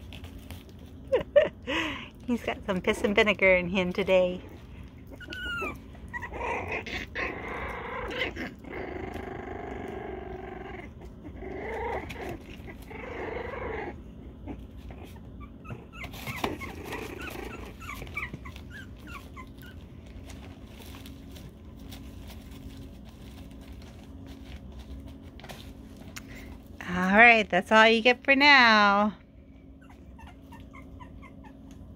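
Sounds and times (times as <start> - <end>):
puppies play-growling: 0.0 - 27.2, 28.5 - 31.9
puppy whining: 4.2 - 26.5, 29.2 - 31.9
puppy yips: 5.1 - 6.4, 15.4 - 19.8, 29.8 - 31.8.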